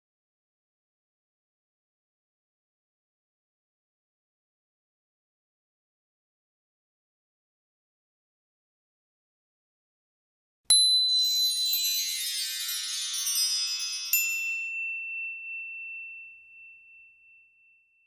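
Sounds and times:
bright ding: 10.7 - 18.0
cascade of high chimes: 10.7 - 18.0.

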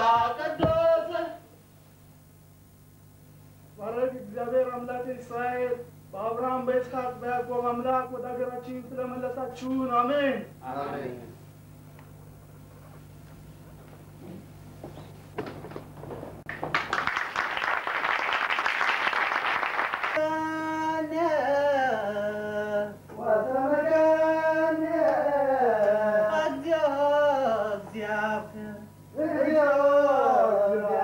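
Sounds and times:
audience applause: 16.5 - 20.2
solo voice chanting: 20.2 - 31.0.

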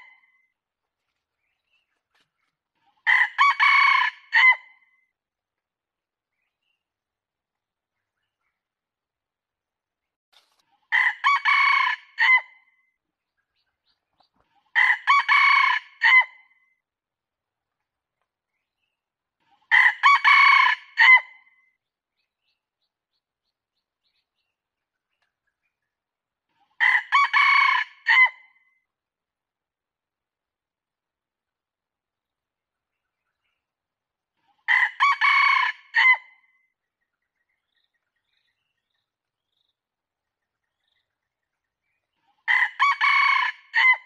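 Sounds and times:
rooster crowing: 3.1 - 4.6, 11.0 - 12.4, 34.8 - 36.2, 42.5 - 44.0.

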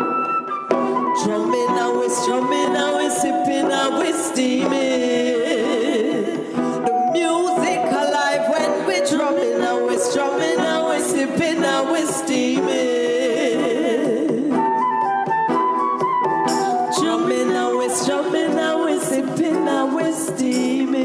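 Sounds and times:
hand drum percussion: 0.7 - 21.0
woman singing lead: 0.8 - 15.8, 16.4 - 21.0
backing singers: 1.1 - 14.6.

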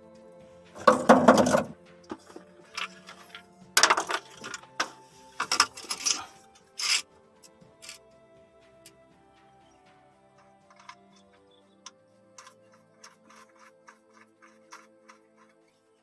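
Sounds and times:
plastic device and wires clattering: 0.8 - 6.2.

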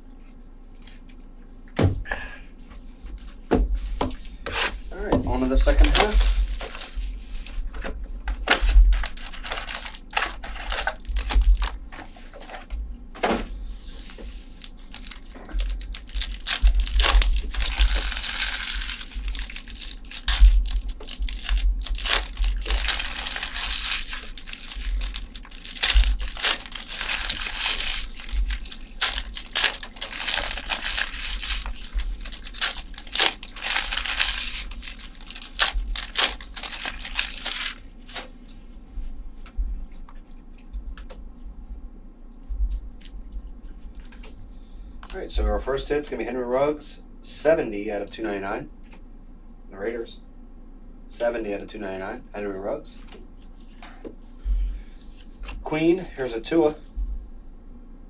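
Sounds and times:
plastic wrapping crinkling and tearing: 4.2 - 7.7, 8.3 - 12.1, 13.8 - 38.4.

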